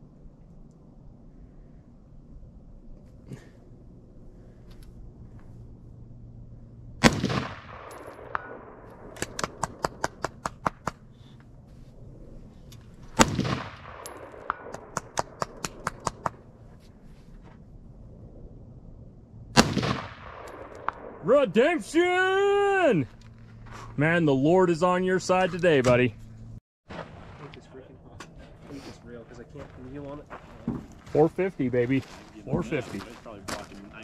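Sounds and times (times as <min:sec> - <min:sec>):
rifle shots: 0:07.0 - 0:10.8, 0:13.1 - 0:16.3, 0:19.5 - 0:21.3
quick run of sharp ticks: 0:14.5 - 0:16.4.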